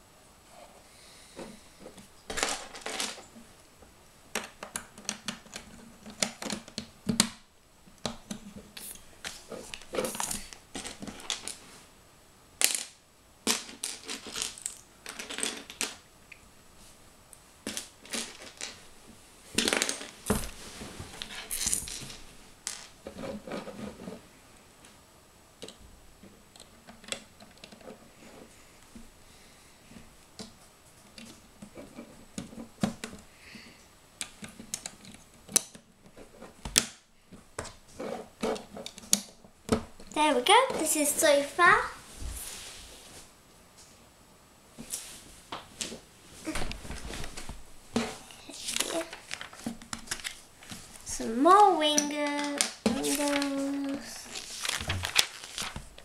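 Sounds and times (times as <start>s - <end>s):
plastic bricks clicking and clattering: 2.3s - 3.3s, 4.3s - 7.4s, 12.6s - 16.0s, 17.7s - 18.8s, 19.6s - 20.2s.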